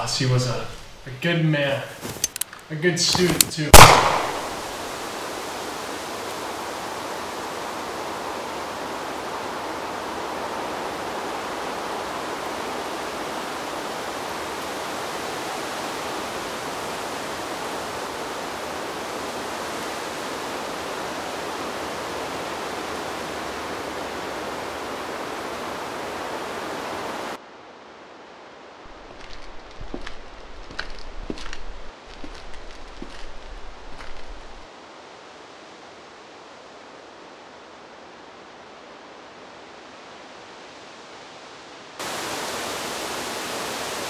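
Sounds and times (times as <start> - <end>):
steady rushing hiss: 0.0 - 41.2, 41.8 - 44.0.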